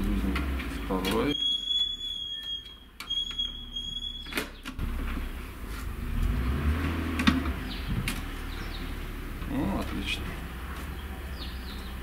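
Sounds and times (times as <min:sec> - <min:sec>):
high whistle-like tone: 0:01.3 - 0:04.4
wind rumbling on microphone: 0:07.5 - 0:08.8.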